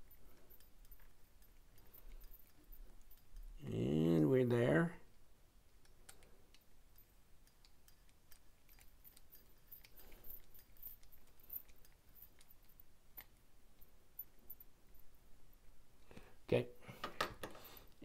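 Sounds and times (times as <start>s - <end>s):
screwdriver clicks and ticks: 5.8s - 9.9s.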